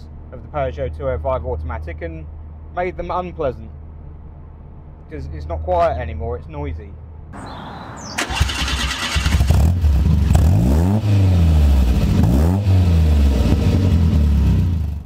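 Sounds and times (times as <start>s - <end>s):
car engine revving: 7.4s - 15.0s.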